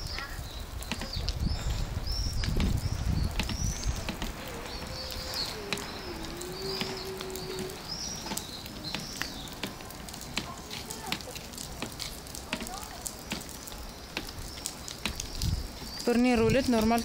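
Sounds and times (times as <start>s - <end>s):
plastic wheels rolling over asphalt: 0.0s - 17.0s
high chirps: 2.3s - 9.6s.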